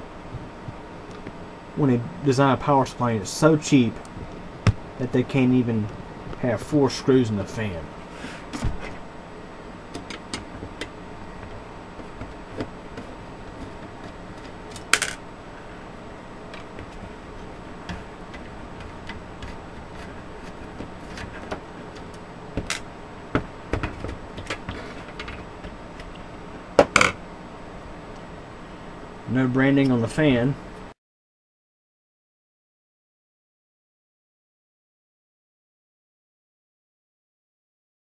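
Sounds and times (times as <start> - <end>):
plastic fan frame handled: 17.8 - 26.1.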